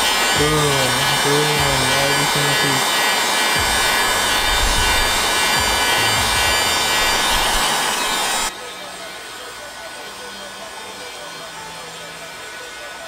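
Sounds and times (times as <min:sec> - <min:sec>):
heat gun blowing: 0:00.0 - 0:08.5.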